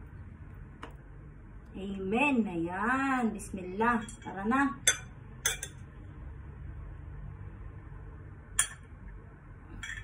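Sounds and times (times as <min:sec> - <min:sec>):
metal spoon clinking ceramic bowl: 0:04.0 - 0:05.8, 0:08.6 - 0:08.8, 0:09.8 - 0:10.0.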